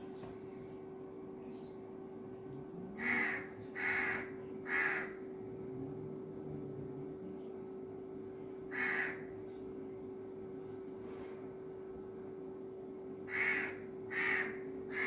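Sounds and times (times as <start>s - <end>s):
crow cawing: 3.0s - 5.2s, 8.7s - 9.3s, 13.3s - 15.0s.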